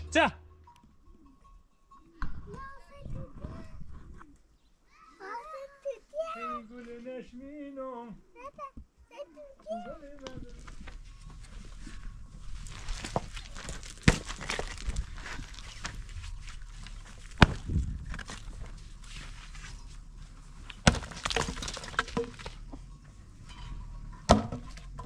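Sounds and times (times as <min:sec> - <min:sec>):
stones and earth rattling: 0:09.9 - 0:25.0
digging tool striking stony soil: 0:12.6 - 0:18.8, 0:20.6 - 0:22.6.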